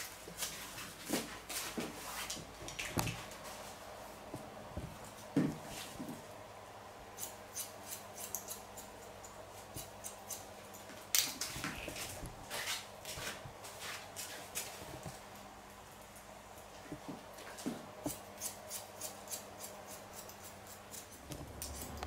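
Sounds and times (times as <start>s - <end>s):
scissors snipping hair: 7.2s - 11.4s, 18.1s - 22.0s.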